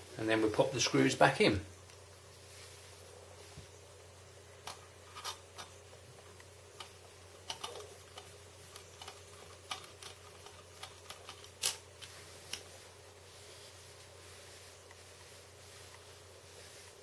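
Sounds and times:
screwdriver clicks and metal scrapes: 0:04.7 - 0:05.8, 0:06.8 - 0:12.7.

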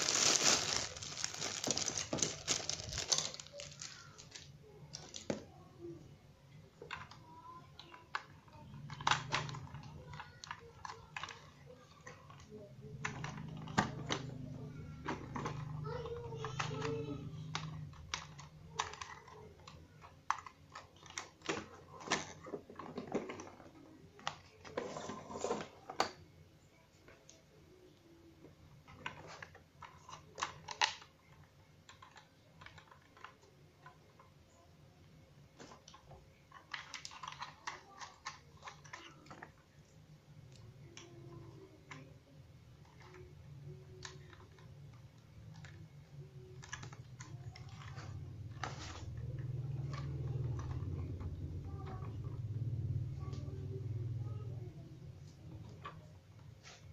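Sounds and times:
plastic toy clicking and tapping: 0:06.8 - 0:24.8, 0:28.8 - 0:34.3, 0:35.6 - 0:42.2.

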